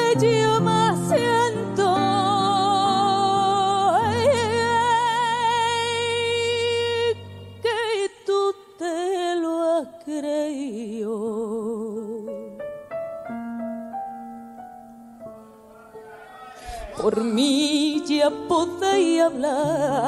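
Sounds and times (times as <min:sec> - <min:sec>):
woman singing with vibrato: 0:00.0 - 0:12.3, 0:16.7 - 0:20.0.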